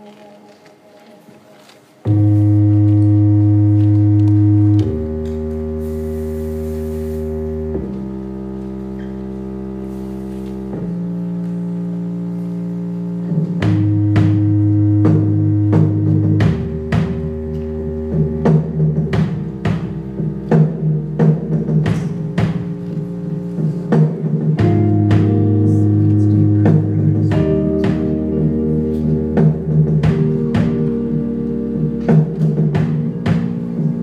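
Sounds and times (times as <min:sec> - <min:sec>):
organ-like chords: 0:00.0 - 0:34.0
percussive beat: 0:13.3 - 0:34.0.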